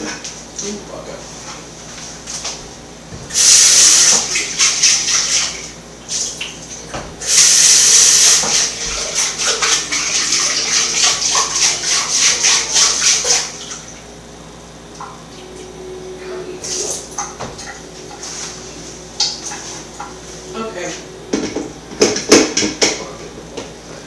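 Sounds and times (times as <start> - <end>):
water running from kitchen tap: 0.0 - 14.2, 16.6 - 23.7.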